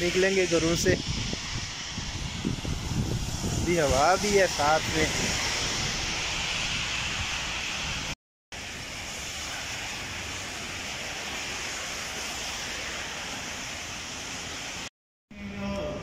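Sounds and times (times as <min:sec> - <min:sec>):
wind buffeting microphone: 0:00.0 - 0:08.2
heavy rain pouring: 0:00.0 - 0:14.9.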